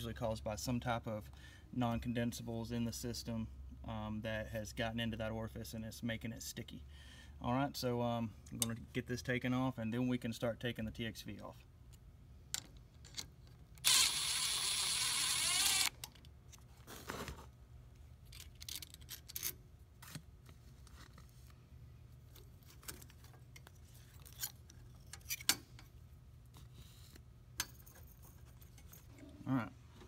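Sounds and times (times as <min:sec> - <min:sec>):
cordless drill running: 0:13.8 - 0:16.0.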